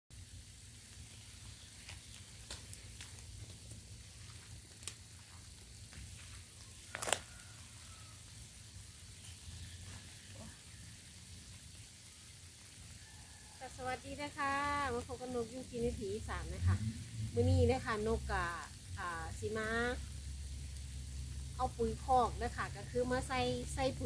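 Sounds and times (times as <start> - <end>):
steady background hiss: 0.1 - 24.0
footsteps close by: 1.8 - 7.3.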